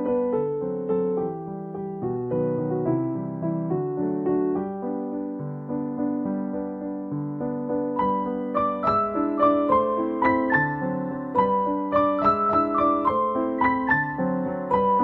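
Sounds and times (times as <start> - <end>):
gentle keyboard music: 0.0 - 15.0.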